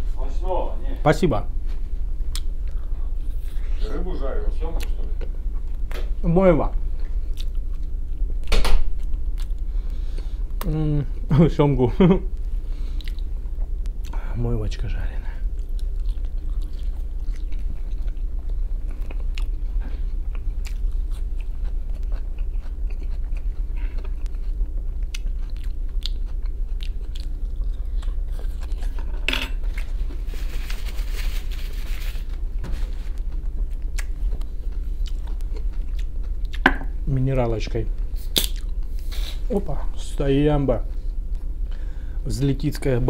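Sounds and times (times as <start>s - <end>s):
person chewing food: 7.0s - 10.7s, 12.9s - 14.2s, 15.4s - 30.6s, 32.3s - 37.0s, 38.2s - 39.1s.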